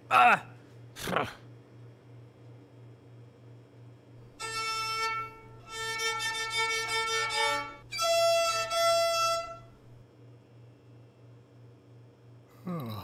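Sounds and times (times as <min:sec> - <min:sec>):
solo violin bowed notes: 0:04.4 - 0:09.7.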